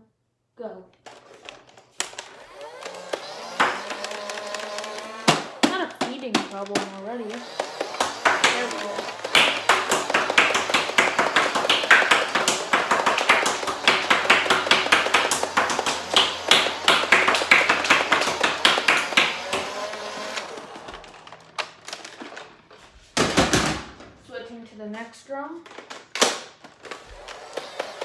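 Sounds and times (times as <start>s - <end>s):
flywheel motors whirring: 1.0s - 22.8s, 26.7s - 28.0s
toy blaster dart shots: 2.0s - 21.2s.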